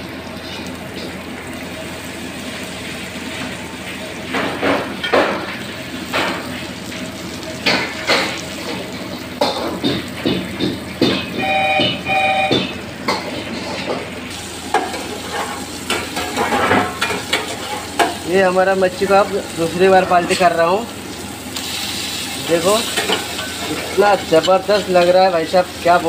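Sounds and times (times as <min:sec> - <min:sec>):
fish sizzling in oil: 0:00.0 - 0:10.8, 0:14.3 - 0:26.0
short beeping tones: 0:11.4 - 0:12.8.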